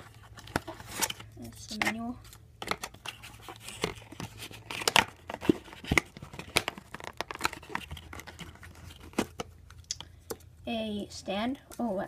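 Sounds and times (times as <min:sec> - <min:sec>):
paper and cardboard rustling: 0:00.0 - 0:09.6.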